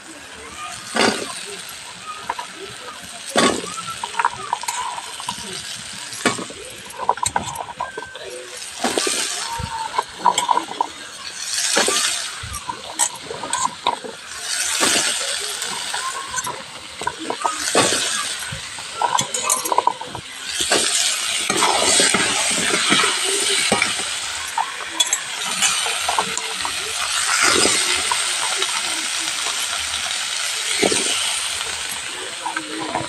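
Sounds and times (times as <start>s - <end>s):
vegetables sizzling in oil: 0.0s - 33.0s.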